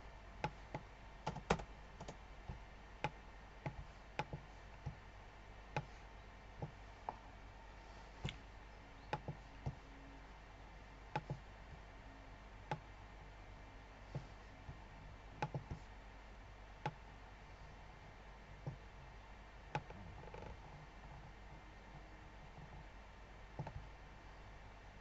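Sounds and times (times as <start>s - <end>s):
faint low hum: 0.0s - 25.0s
computer mouse clicks: 0.4s - 2.2s, 3.0s - 5.0s, 5.7s - 5.9s, 9.0s - 9.8s, 11.1s - 11.5s, 12.7s - 12.9s, 15.4s - 15.9s, 19.7s - 21.3s, 23.6s - 23.9s.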